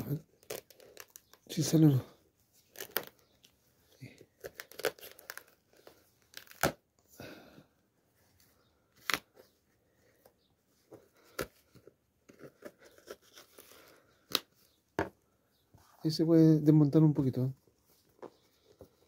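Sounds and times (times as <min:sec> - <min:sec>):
scraping and tearing: 0:00.3 - 0:01.6, 0:02.6 - 0:03.3, 0:04.2 - 0:06.8.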